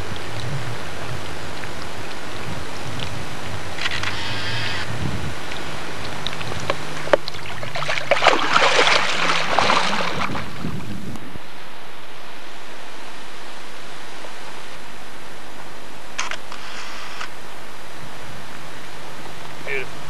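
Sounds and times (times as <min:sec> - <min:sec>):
fish splashing in water: 0:00.0 - 0:10.8
steady hiss: 0:00.0 - 0:20.0.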